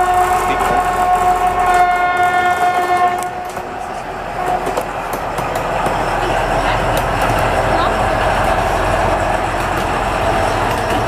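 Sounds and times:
locomotive horn blast: 0:00.0 - 0:03.6
locomotive engine and wheels rolling: 0:00.0 - 0:11.0.

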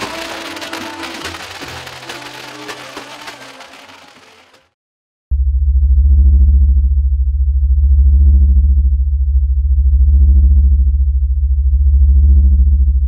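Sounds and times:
synthesizer bass drone: 0:05.3 - 0:13.0.

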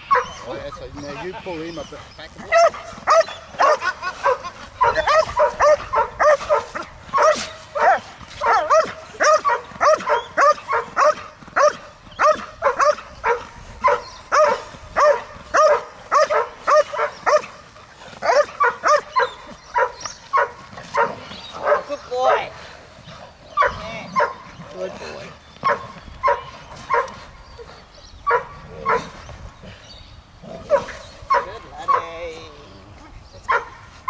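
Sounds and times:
dog barking rapidly: 0:00.1 - 0:00.4, 0:02.4 - 0:17.6, 0:18.2 - 0:22.5, 0:23.6 - 0:24.4, 0:25.6 - 0:27.2, 0:28.3 - 0:29.1, 0:30.7 - 0:32.1, 0:33.5 - 0:33.8.

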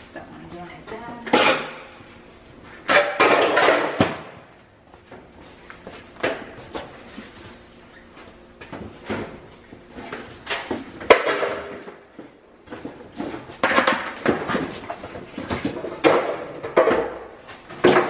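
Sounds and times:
objects knocking and clattering: 0:02.8 - 0:04.5, 0:10.0 - 0:18.0.

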